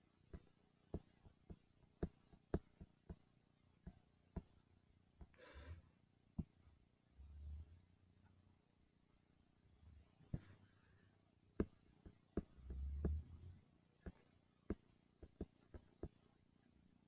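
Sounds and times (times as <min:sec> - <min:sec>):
taps on a touchscreen: 0:00.3 - 0:04.5, 0:11.6 - 0:13.3, 0:14.0 - 0:16.2.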